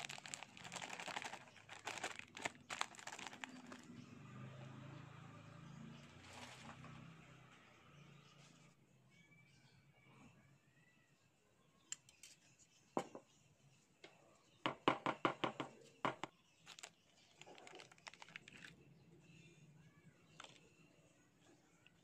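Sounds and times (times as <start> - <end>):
foil sachet crinkling: 0.0 - 3.9, 16.6 - 18.7, 20.4 - 20.6.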